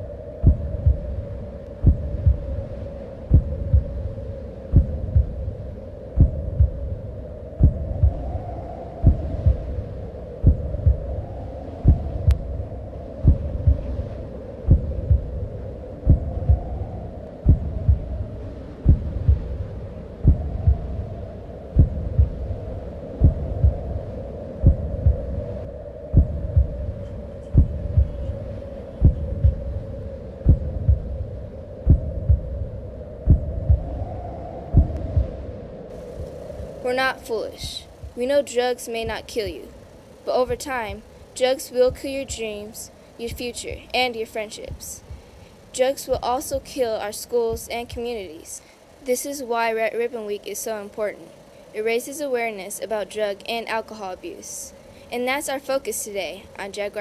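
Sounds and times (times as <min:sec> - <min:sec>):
heartbeat thumps: 0:00.0 - 0:35.4, 0:36.1 - 0:38.4, 0:41.8 - 0:42.6, 0:44.6 - 0:45.4, 0:46.0 - 0:48.1
droning tone: 0:00.0 - 0:48.3.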